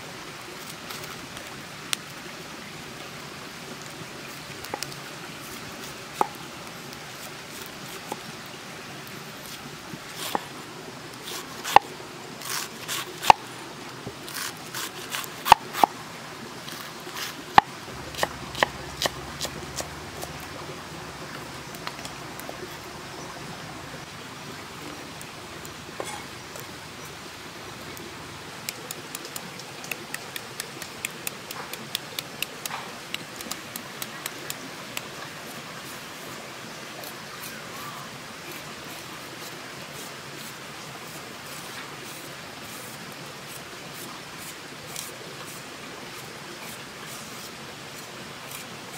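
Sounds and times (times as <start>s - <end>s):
steady low hiss: 0.0s - 48.9s
knife chopping cabbage on wooden board: 18.1s - 20.3s.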